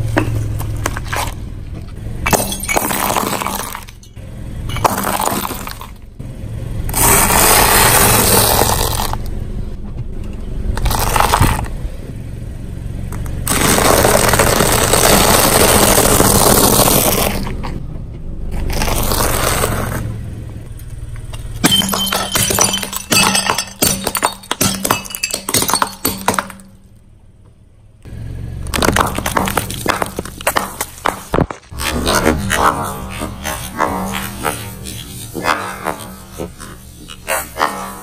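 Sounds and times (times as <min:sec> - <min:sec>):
tyre crunching objects on concrete: 0:00.0 - 0:01.5, 0:02.3 - 0:04.0, 0:04.8 - 0:06.0, 0:06.9 - 0:09.3, 0:10.8 - 0:11.8, 0:13.4 - 0:17.8, 0:18.5 - 0:20.1, 0:28.7 - 0:38.0
ceramic plates shattering: 0:21.6 - 0:26.7.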